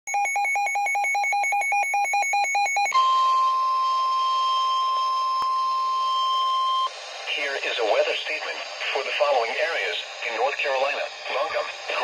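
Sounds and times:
rapid electronic beeping: 0:00.1 - 0:03.0
steady alarm tone: 0:00.1 - 0:12.0.

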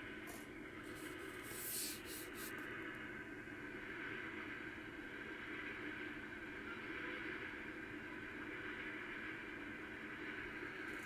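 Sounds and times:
sharp hissy rustles: 0:00.9 - 0:02.6.

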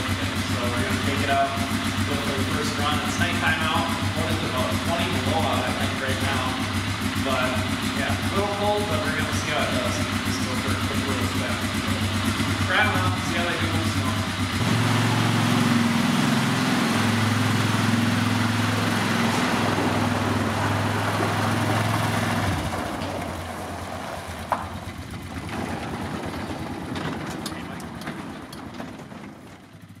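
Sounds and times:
atv engine running: 0:00.0 - 0:30.0.

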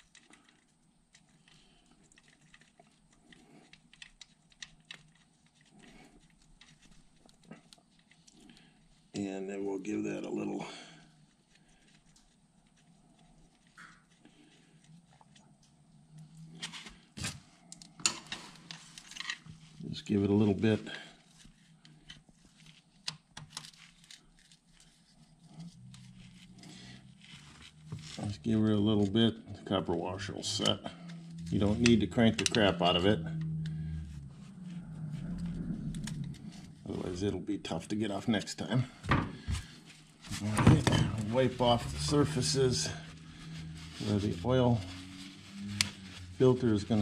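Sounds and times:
low steady hum: 0:23.8 - 0:47.0.

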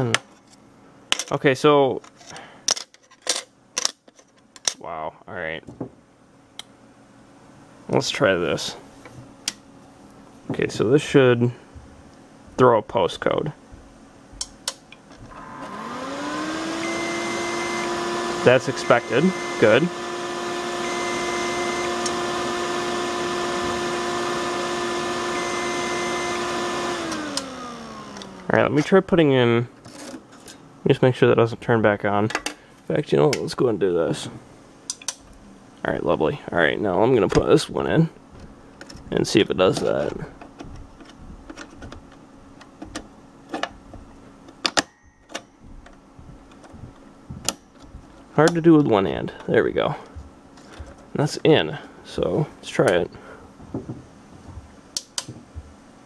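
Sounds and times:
computer fans humming: 0:04.6 - 0:29.8, 0:30.6 - 0:56.0
fans spinning down: 0:14.4 - 0:29.7.

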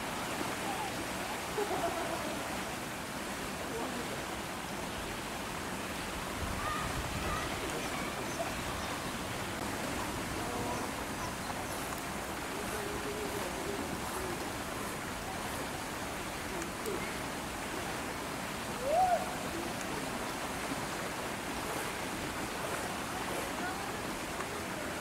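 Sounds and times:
faint distant voices: 0:06.0 - 0:25.0.

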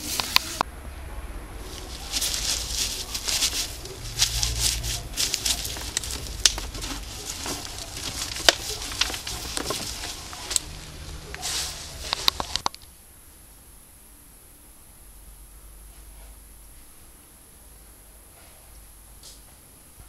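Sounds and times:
shredded strips crackling and rustling: 0:00.0 - 0:12.9.

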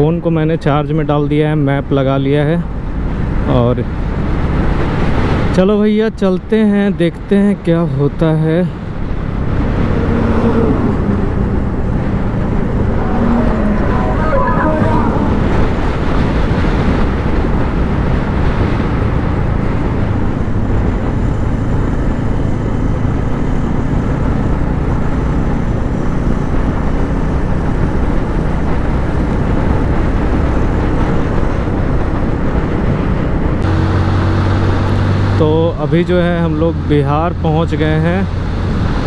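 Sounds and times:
motorcycle engine hum: 0:08.2 - 0:39.0
wind rushing over microphone: 0:08.5 - 0:35.4, 0:37.8 - 0:39.0.

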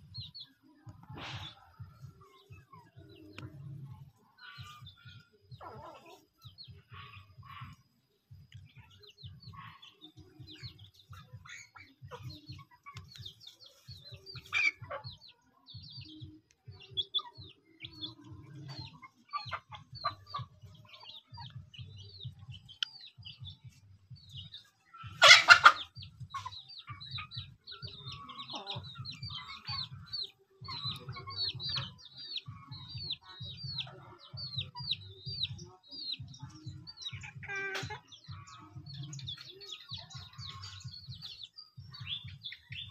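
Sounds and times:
chickens clucking: 0:00.0 - 0:42.9
chicken squawking: 0:25.1 - 0:27.0.

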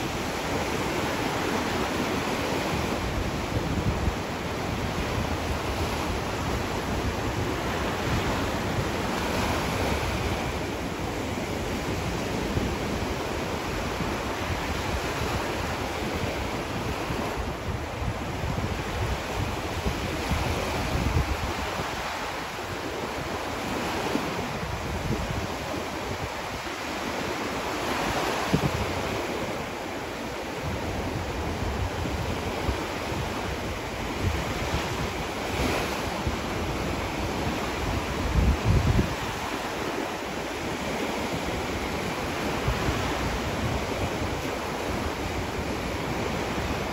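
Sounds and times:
waves breaking on beach: 0:00.0 - 0:46.9
wind buffeting microphone: 0:00.0 - 0:46.9.

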